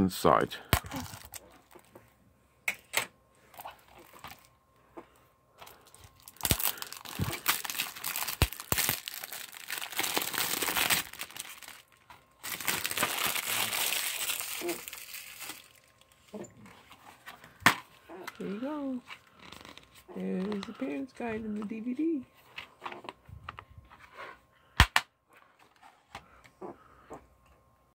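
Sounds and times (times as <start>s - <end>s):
plastic wrap crinkling and tearing: 0.8s - 1.9s, 3.6s - 4.5s, 5.6s - 16.2s, 19.2s - 20.9s.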